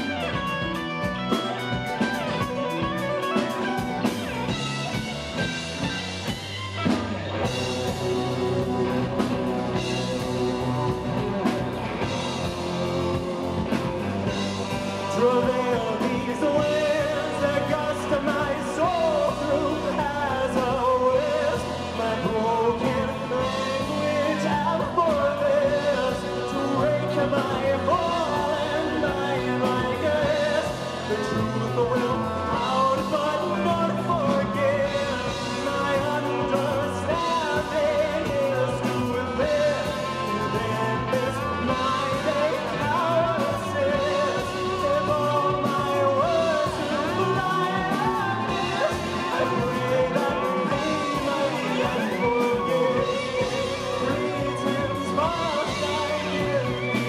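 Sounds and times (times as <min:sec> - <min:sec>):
drums: 0:00.0 - 0:57.0
keyboards: 0:00.0 - 0:57.0
man singing: 0:07.4 - 0:57.0.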